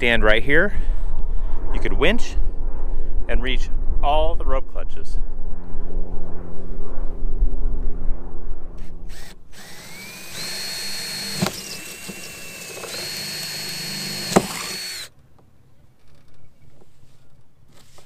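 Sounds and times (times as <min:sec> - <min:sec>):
low steady hum: 0:00.0 - 0:18.0
cordless drill whining: 0:09.1 - 0:15.1.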